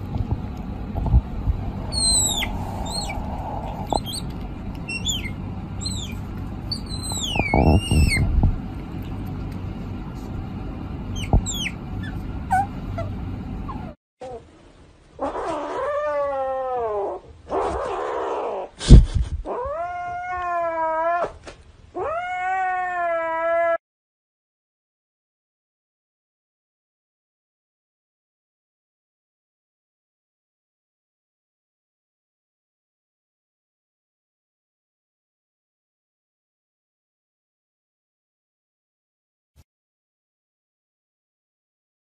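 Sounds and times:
otter squeaking: 0:01.1 - 0:09.3, 0:11.1 - 0:14.4
kitten meowing: 0:01.9 - 0:08.5, 0:11.2 - 0:12.7.

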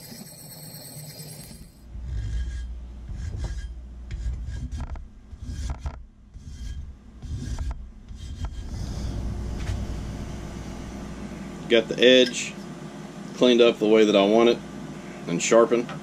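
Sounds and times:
abrasive rubbing on steel: 0:00.0 - 0:10.1.

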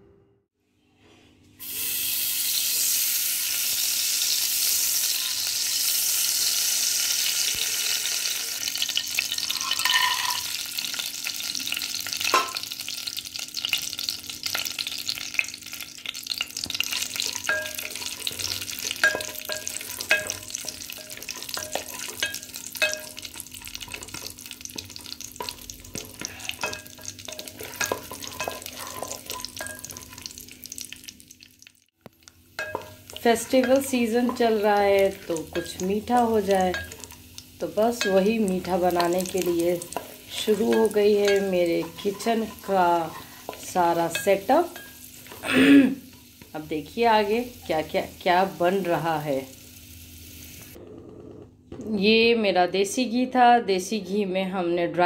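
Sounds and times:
butter sizzling in a pan: 0:01.6 - 0:50.8
spatula scraping and tapping pan: 0:08.9 - 0:10.6, 0:16.1 - 0:30.9, 0:32.6 - 0:37.2, 0:37.9 - 0:45.4.

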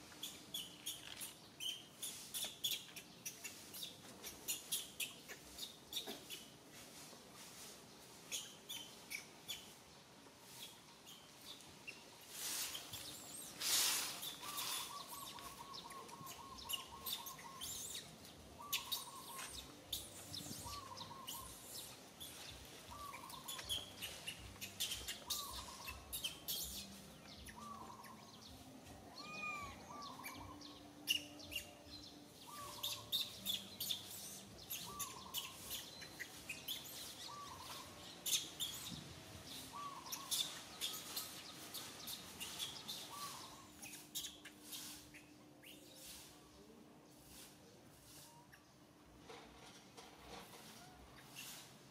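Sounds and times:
infant macaque crying: 0:29.1 - 0:30.4.

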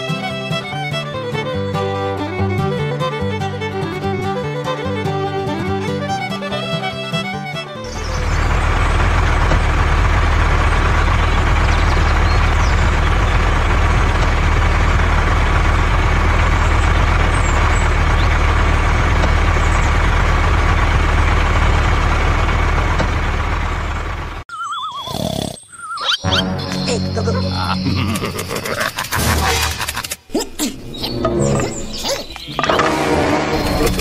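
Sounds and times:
tractor engine rumbling: 0:05.6 - 0:24.5, 0:26.3 - 0:34.0.

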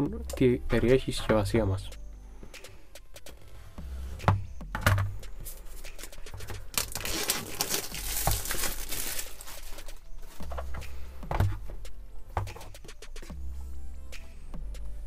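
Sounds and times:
plastic wrap crinkling and tearing: 0:05.6 - 0:10.4.

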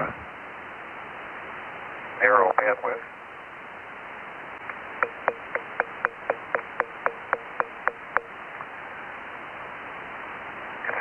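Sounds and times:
radio hiss: 0:02.1 - 0:03.2, 0:10.8 - 0:11.0
sharp taps with brief ring: 0:05.0 - 0:08.3.

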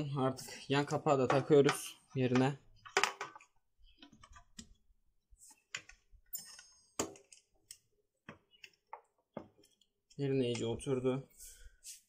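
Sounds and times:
plastic clicks and knocks: 0:01.2 - 0:04.8.

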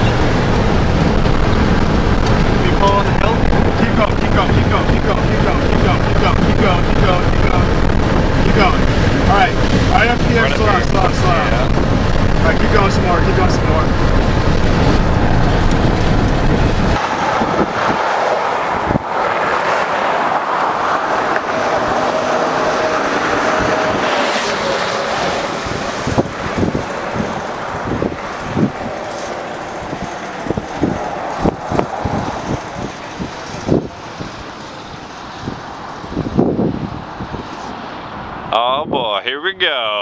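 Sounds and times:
road rumble inside a car: 0:00.0 - 0:18.0
short thumps and gusts: 0:00.0 - 0:34.8
vehicle passing close by: 0:00.0 - 0:38.5
highway traffic: 0:00.0 - 0:40.0.

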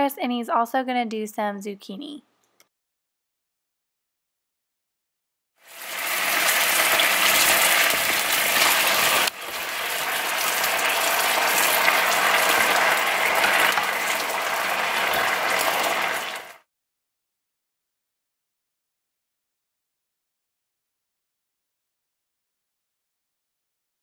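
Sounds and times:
meat sizzling in a frying pan: 0:05.6 - 0:16.6.

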